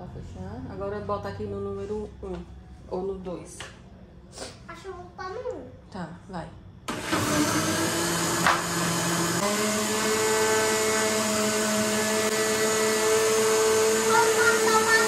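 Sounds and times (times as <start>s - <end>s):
blender motor whine: 6.9s - 15.0s.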